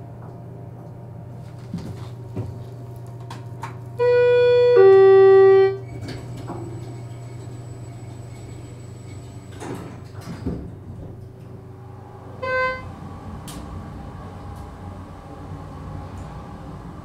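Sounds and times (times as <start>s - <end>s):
low steady hum: 0.0s - 5.9s.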